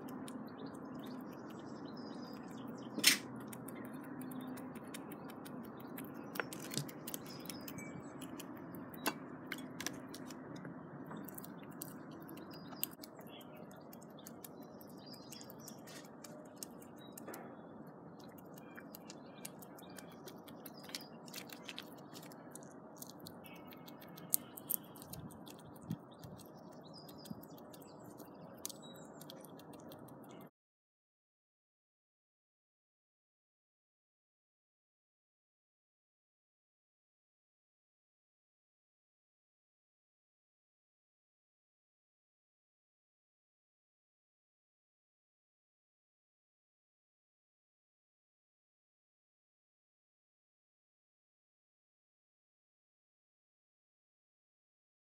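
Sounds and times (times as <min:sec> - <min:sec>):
faint birdsong: 0:00.0 - 0:30.5
squirrel gnawing and cracking nut: 0:00.0 - 0:30.5.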